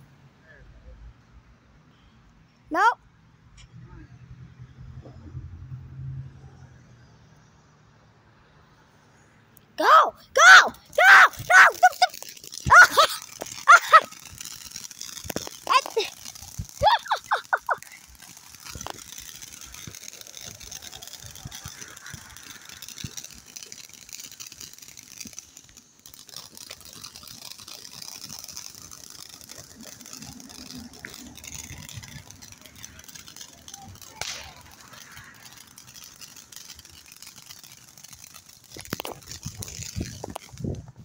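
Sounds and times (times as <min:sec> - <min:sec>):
firework crackles and pops: 0:02.8 - 0:05.8, 0:06.4 - 0:41.0
firework fountain hissing: 0:06.4 - 0:41.0.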